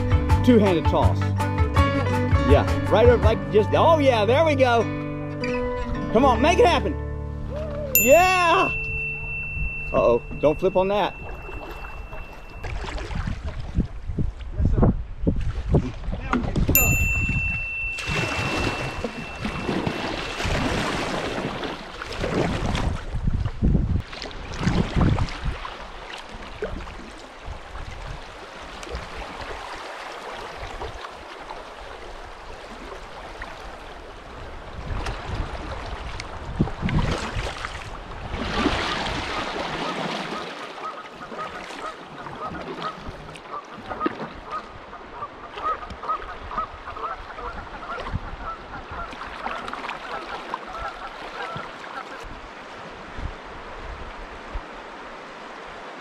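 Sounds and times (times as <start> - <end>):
paddle strokes splashing water: 8.8 - 14.5, 15.3 - 53.1.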